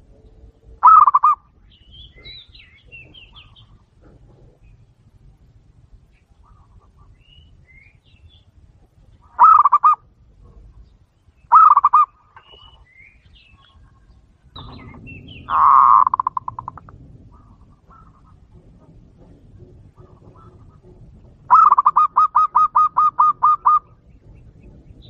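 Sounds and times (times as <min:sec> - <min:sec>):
small birds chirping: 0:00.2 - 0:18.5
dove rolling coos: 0:00.8 - 0:01.4, 0:09.3 - 0:10.7, 0:11.5 - 0:12.1, 0:14.6 - 0:24.0.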